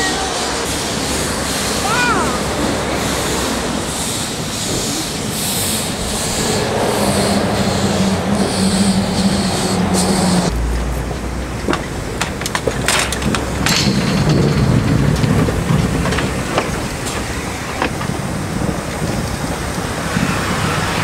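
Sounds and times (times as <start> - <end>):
steam locomotive hissing steam: 0.0 - 10.5.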